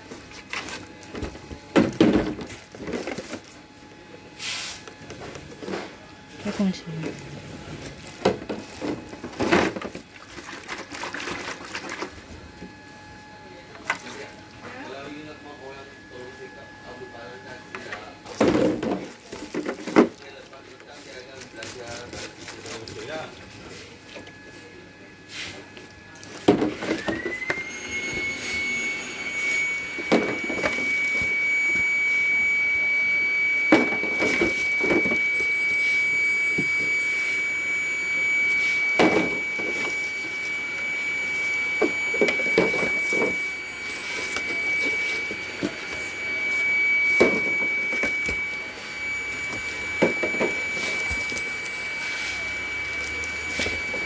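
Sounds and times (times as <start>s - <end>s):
packing paper and cardboard rustling: 0.0s - 3.6s, 6.7s - 12.5s, 18.3s - 24.4s
motor whining: 26.8s - 32.8s.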